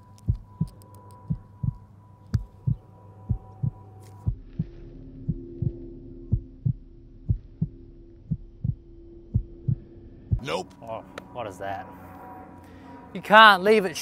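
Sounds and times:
steady low hum: 0:00.0 - 0:14.0
heartbeat lub-dub: 0:00.2 - 0:01.8, 0:02.4 - 0:10.4.

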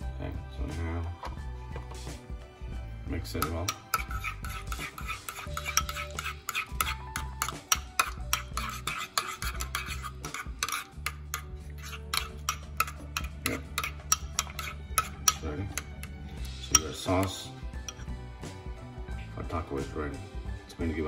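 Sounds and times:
metal spoon scraping ceramic bowl: 0:03.2 - 0:18.2.

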